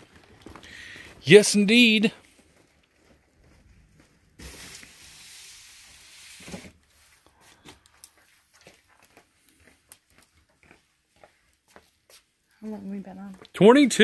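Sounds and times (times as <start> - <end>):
cardboard scraping hiss: 4.3 - 7.2.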